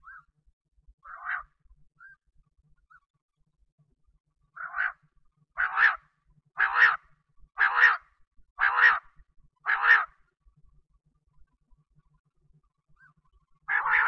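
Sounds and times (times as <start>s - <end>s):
quail calling: 0.0s - 0.3s, 1.0s - 2.2s, 4.6s - 10.2s, 13.0s - 14.0s.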